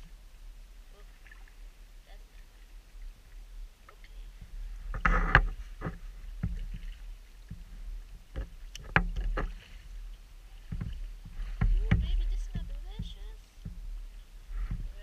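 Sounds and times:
clicks and knocks of handling: 8.3 - 9.6
rustling scrape: 14.5 - 15.0.

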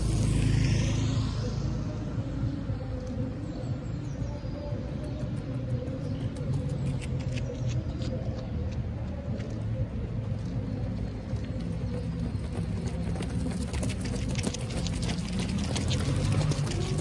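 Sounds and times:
traffic rumble: 0.0 - 17.0
wind: 0.0 - 17.0
runners' footsteps: 2.8 - 17.0.

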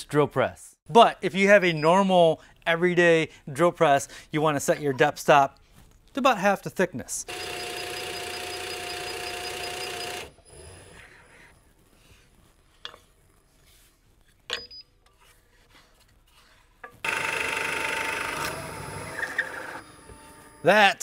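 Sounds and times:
drill press whirring: 7.3 - 11.1, 17.0 - 20.7.

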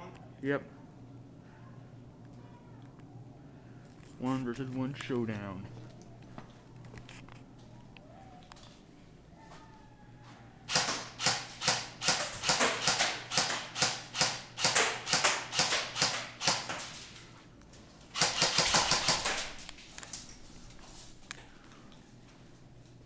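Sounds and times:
airsoft gun shots: 10.7 - 16.9, 18.2 - 19.7
full-auto gun burst: 10.7 - 16.9, 18.2 - 19.7.

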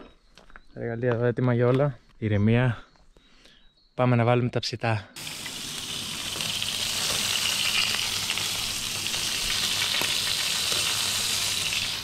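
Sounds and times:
meat sizzling on a grill: 5.2 - 12.0.

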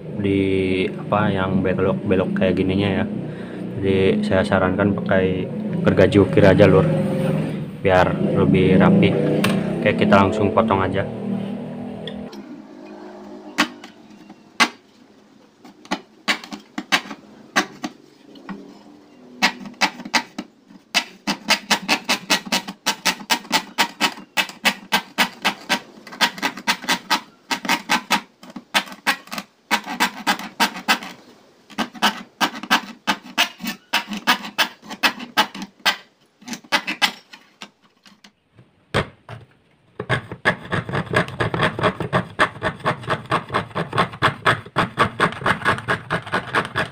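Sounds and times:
fret saw cutting sheet: 8.5 - 14.9, 15.6 - 37.5, 40.0 - 46.9.

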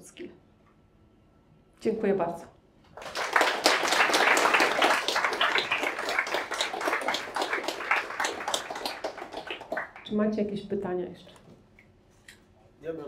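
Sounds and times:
audience applauding: 2.9 - 10.2.

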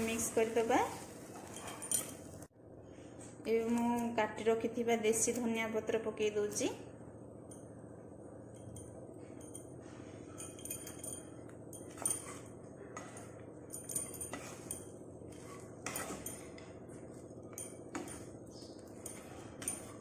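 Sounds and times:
wooden spatula scraping a pan: 0.0 - 2.0, 14.3 - 17.3
low steady hum: 0.0 - 20.0.

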